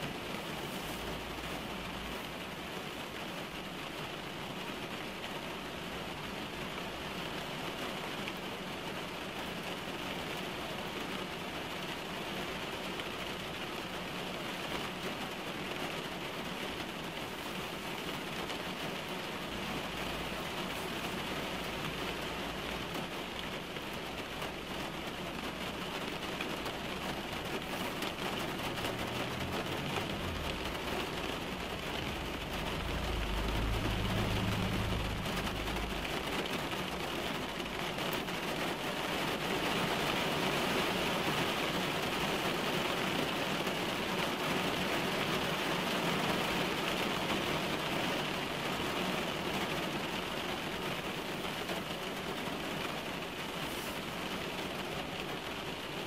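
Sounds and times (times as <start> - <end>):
rain on car roof: 0.0 - 56.0
low rumble: 29.7 - 36.4.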